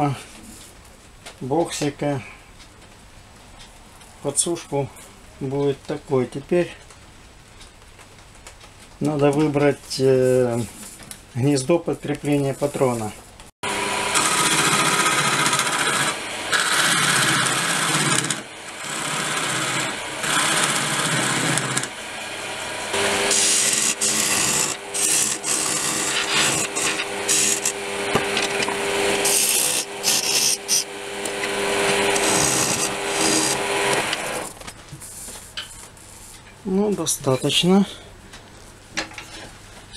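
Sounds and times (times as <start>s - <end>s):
lathe tool scraping wood: 12.4s - 36.4s
steady hum: 13.7s - 38.8s.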